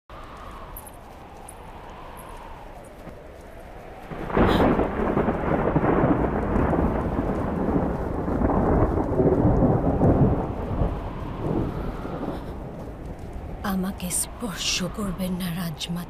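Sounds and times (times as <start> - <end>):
thunder crack and rumble: 0.1 - 16.0.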